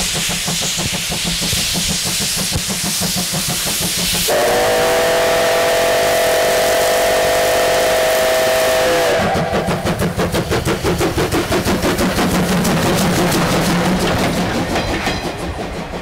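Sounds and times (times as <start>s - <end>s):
steam hissing: 0.0s - 16.0s
steam locomotive exhaust chuffs: 0.0s - 16.0s
steam whistle chord: 4.3s - 9.8s.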